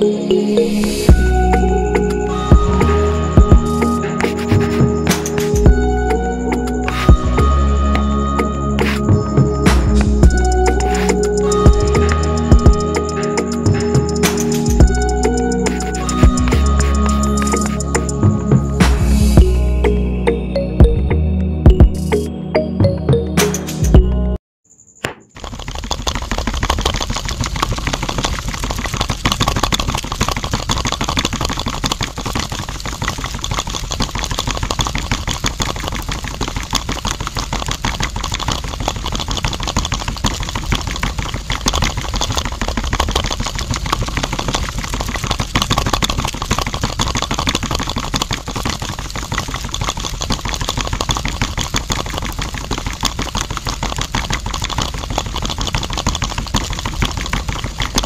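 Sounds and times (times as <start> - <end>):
small motor with fast rattle: 25.3 - 58.0.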